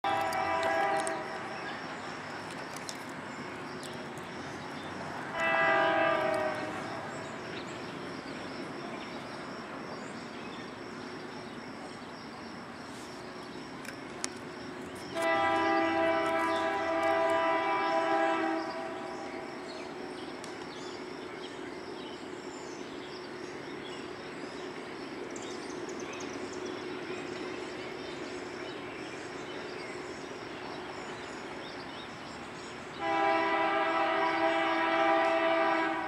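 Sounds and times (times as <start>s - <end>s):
distant locomotive air horn: 0.0s - 1.5s, 5.3s - 7.3s, 15.1s - 19.4s, 33.0s - 36.0s
train rumbling hiss: 0.0s - 36.0s.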